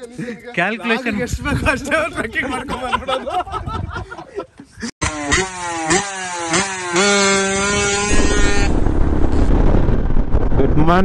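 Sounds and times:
wind rushing over microphone: 1.1 - 4.1, 7.5 - 11.0
motorcycle engine accelerating: 5.0 - 10.8.

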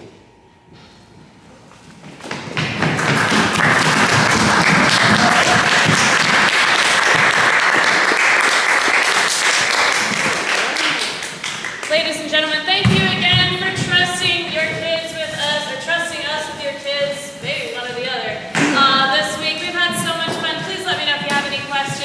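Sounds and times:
audience applauding: 2.6 - 11.9.

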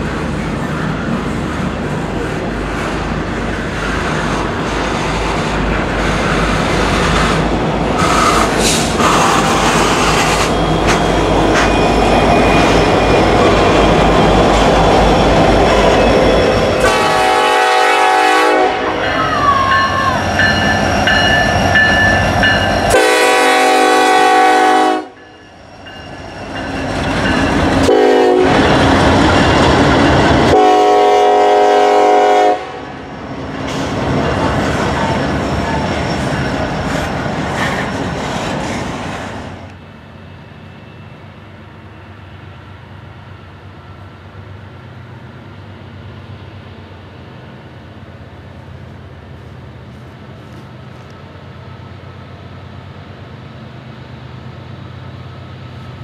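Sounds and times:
locomotive air horn: 8.0 - 9.8, 16.8 - 20.2, 22.9 - 25.2, 27.8 - 28.7, 30.5 - 33.0.

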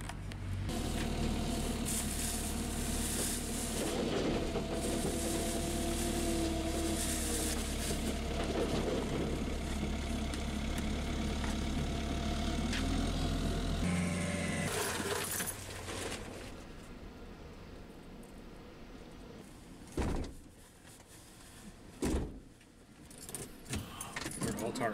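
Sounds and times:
engine running steadily: 0.0 - 17.4
wood chips pouring into truck bed: 0.7 - 9.5, 14.7 - 16.5.

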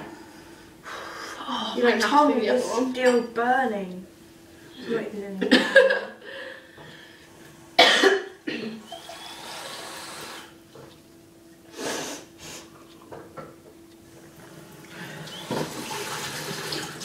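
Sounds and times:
person coughing: 7.8 - 8.8.

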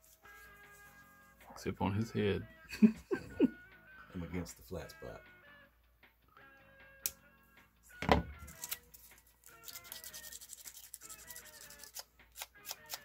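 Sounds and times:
soft background music: 0.0 - 13.0
tool set down on mat: 8.0 - 8.4.

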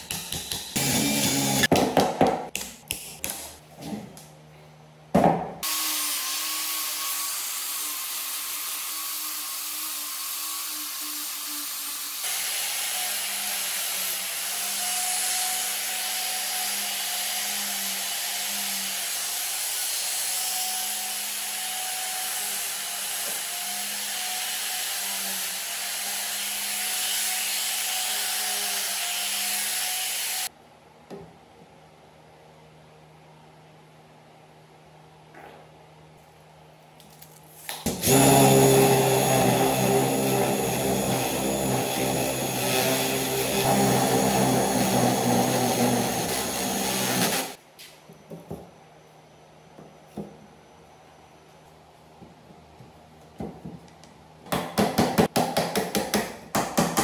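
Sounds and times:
angle grinder cutting bamboo: 0.8 - 1.7, 37.9 - 47.6.

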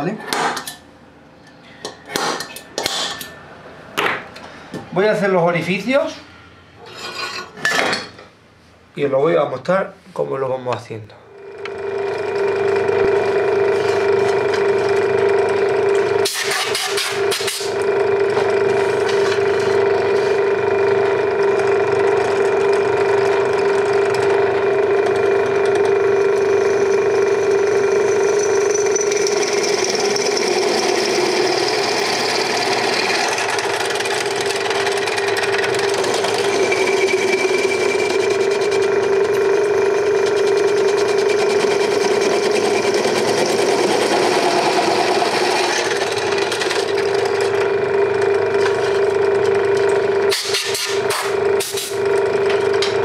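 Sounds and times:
drill press motor hum: 11.3 - 53.0
drill bit cutting metal hiss: 50.3 - 52.0.

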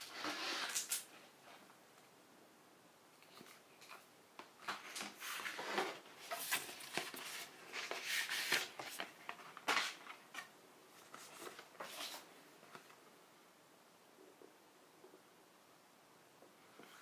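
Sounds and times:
cards rustling and sliding: 4.6 - 13.0.

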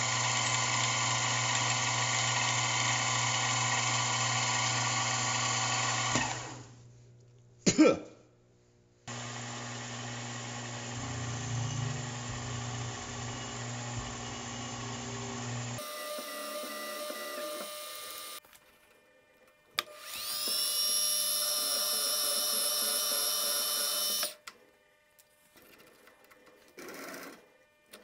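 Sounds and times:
drill boring into metal: 0.0 - 6.6, 9.1 - 18.4, 19.9 - 24.4
milling machine spindle running: 0.0 - 6.6, 9.1 - 18.4.

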